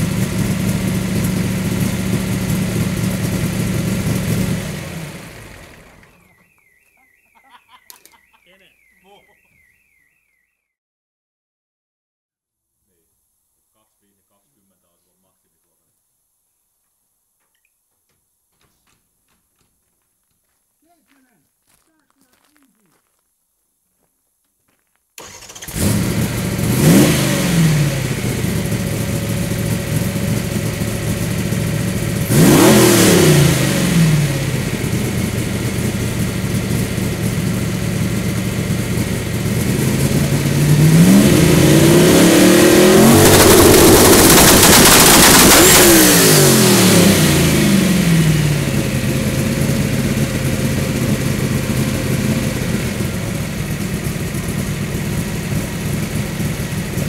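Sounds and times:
car engine idling and revving: 0:00.0 - 0:06.4, 0:25.2 - 0:57.0.

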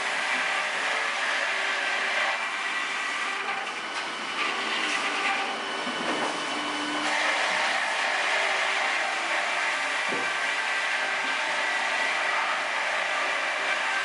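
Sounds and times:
sawmill saw cutting log: 0:00.0 - 0:14.0.

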